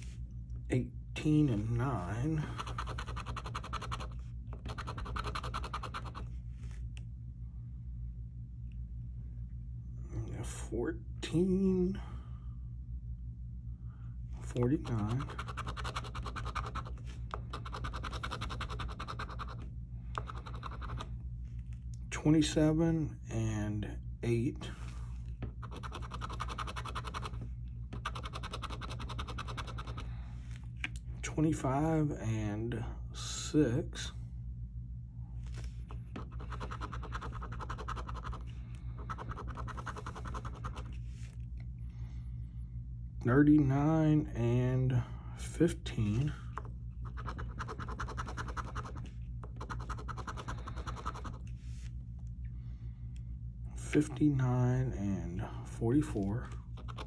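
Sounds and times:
scratching lottery ticket: 2.4 - 6.3, 14.7 - 19.6, 20.2 - 21.1, 25.6 - 30.1, 36.2 - 41.4, 47.0 - 51.5, 56.8 - 57.0.

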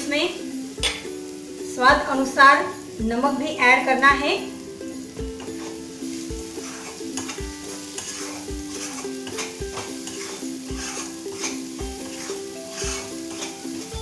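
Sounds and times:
paste sizzling in oil: 0.0 - 14.0
soft background music: 0.0 - 14.0
spatula scraping a pan: 5.3 - 14.0.

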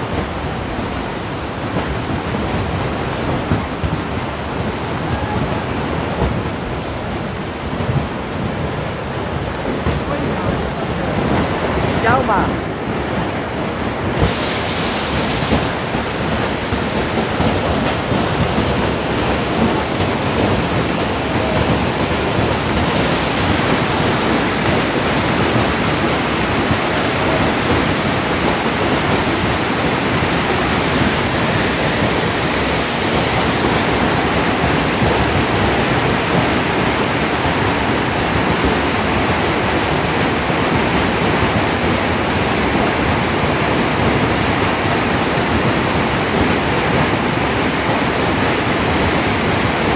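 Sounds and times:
hail and heavy rain: 0.0 - 49.9.

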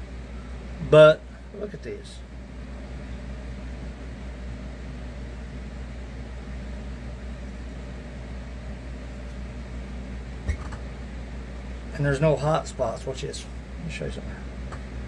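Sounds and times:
low machine hum: 0.0 - 15.0.

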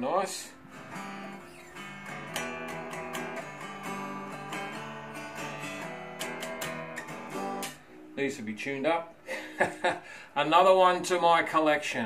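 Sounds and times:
out of tune electric guitar picking: 0.6 - 8.2.

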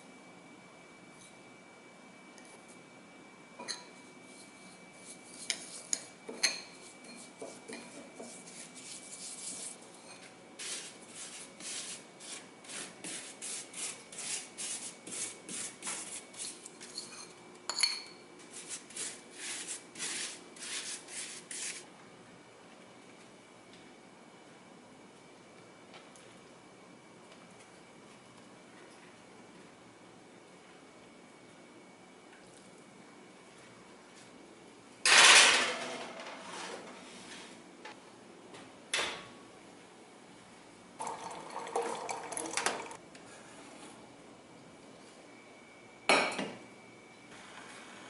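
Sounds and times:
spoon rubbing and scraping paste: 4.4 - 6.1, 6.8 - 9.9, 10.6 - 16.7, 18.5 - 21.8
metal spoon clinking on ceramic bowl: 16.9 - 18.2.

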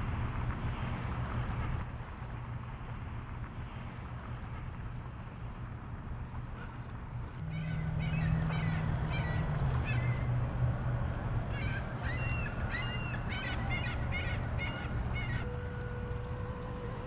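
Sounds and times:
birds calling: 6.6 - 17.0
boat motor humming: 6.6 - 17.0.

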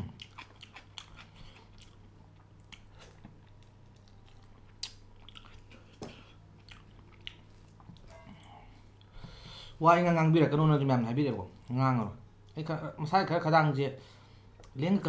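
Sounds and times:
man chewing with mouth smacks: 0.0 - 9.2
low steady hum: 0.0 - 15.0.

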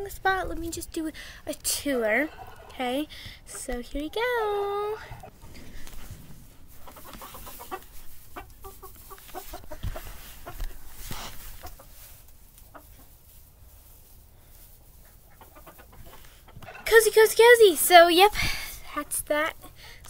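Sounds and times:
chickens clucking: 1.6 - 13.4, 14.0 - 18.0.

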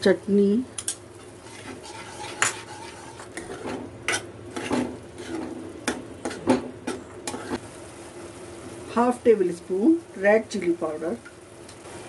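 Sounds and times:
spoon scraping metal pan: 1.2 - 7.6.

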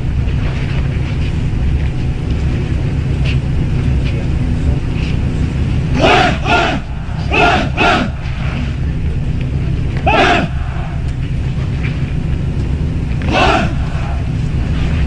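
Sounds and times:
low outdoor rumble: 0.0 - 15.0
group shouting together: 6.0 - 8.2, 10.0 - 11.0, 13.3 - 14.2.

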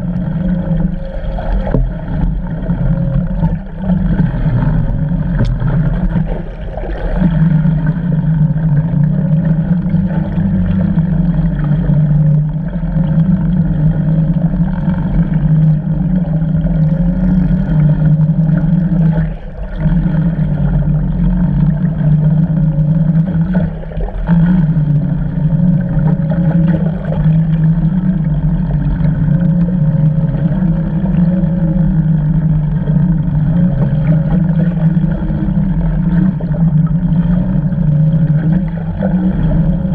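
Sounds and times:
boat engine drone underwater: 0.0 - 39.9.

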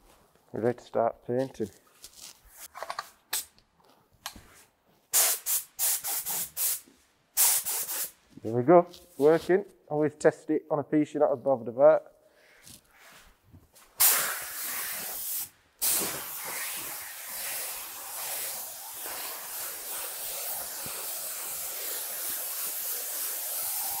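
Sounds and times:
paint spray gun hissing: 5.2 - 6.8, 7.4 - 8.2, 14.0 - 24.0.

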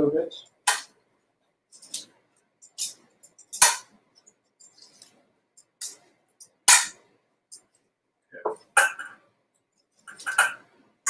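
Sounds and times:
metal tongs scraping metal bowl: 1.7 - 3.7, 10.1 - 10.6.

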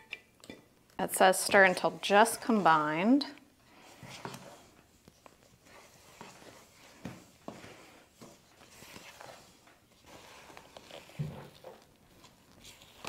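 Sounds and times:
wooden spoon scraping bowl: 1.1 - 13.0.

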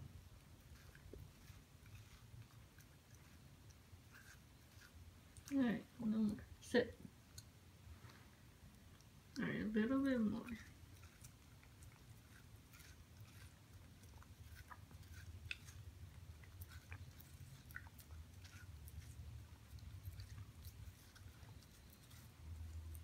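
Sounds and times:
low steady hum: 0.0 - 23.0
puppy chewing wet smacks: 10.1 - 23.0.

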